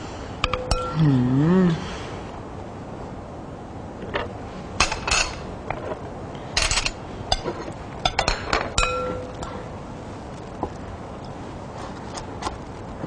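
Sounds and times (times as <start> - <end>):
utensils clinking on plates: 4.1 - 6.0, 6.6 - 9.6.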